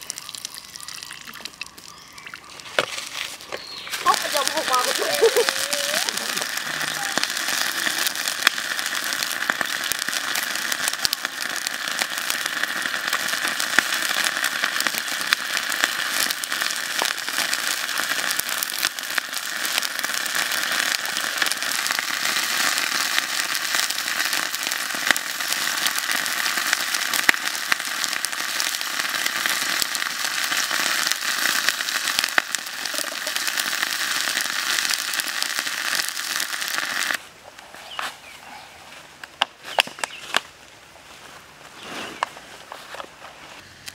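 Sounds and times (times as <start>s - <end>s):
wood fire crackling: 0.0s - 38.4s
water boiling hard in pan: 3.6s - 37.2s.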